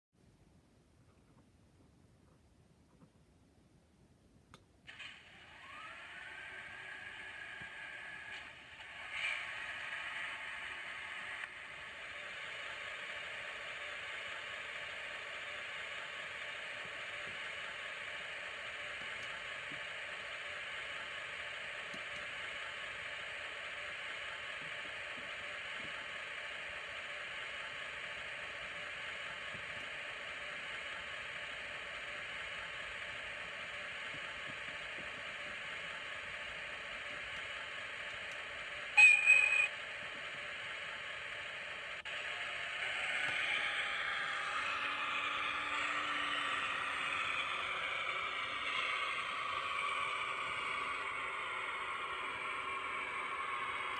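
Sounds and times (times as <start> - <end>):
diesel locomotive engine idling: 4.9 - 53.9
high-pitched horn blast: 38.9 - 39.8.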